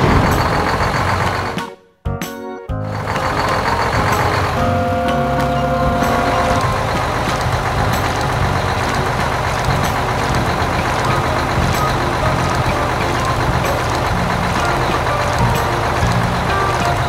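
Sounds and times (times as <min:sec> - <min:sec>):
dump truck engine running: 0:00.0 - 0:01.6, 0:02.8 - 0:17.0
gravel pouring rattle: 0:06.4 - 0:17.0.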